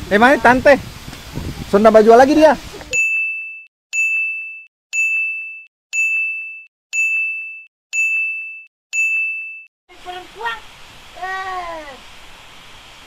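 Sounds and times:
high electronic beep: 3.0 - 9.7.

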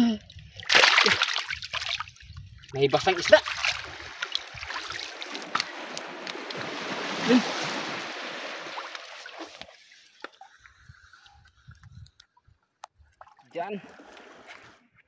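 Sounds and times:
hands splashing water: 0.6 - 2.2, 3.2 - 10.4.

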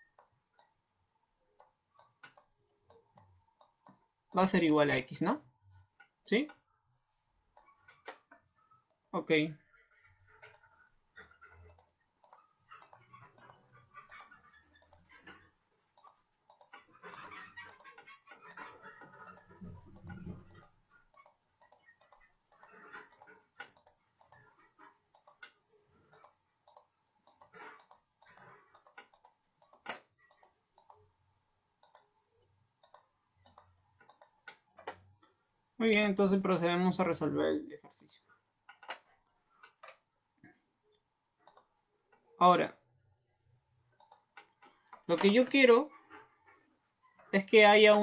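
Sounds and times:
computer mouse clicking: 0.0 - 0.8, 1.5 - 5.1, 10.3 - 31.2, 31.8 - 35.0, 38.6 - 40.0, 40.9 - 41.8, 44.0 - 45.6.

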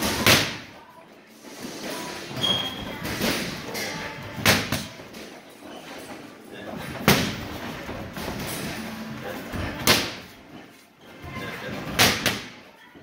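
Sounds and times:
boxing gloves punching focus mitts: 0.0 - 0.8, 1.8 - 6.0, 6.7 - 10.5, 11.3 - 12.7.

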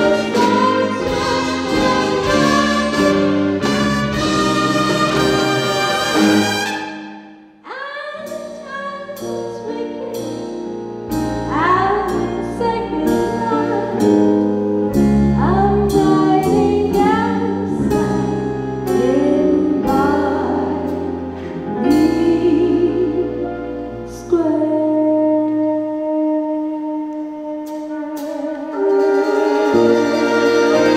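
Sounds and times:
band and orchestra playing: 0.0 - 7.5, 8.2 - 30.9
woman singing a slow ballad: 15.4 - 18.3, 18.9 - 28.7.

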